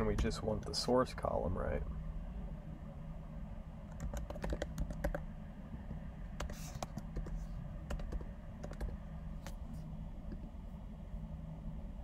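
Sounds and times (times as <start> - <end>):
steady low hum: 0.0 - 12.0
keyboard key clicks: 4.0 - 5.2.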